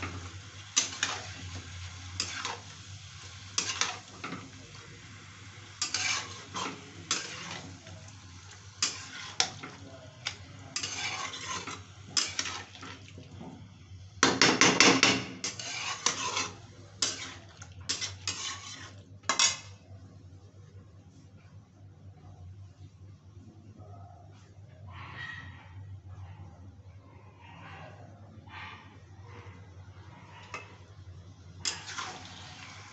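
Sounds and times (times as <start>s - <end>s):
metal spatula scraping pan: 0.0s - 4.6s, 5.8s - 8.0s, 8.8s - 13.0s, 14.7s - 19.7s, 31.7s - 32.5s.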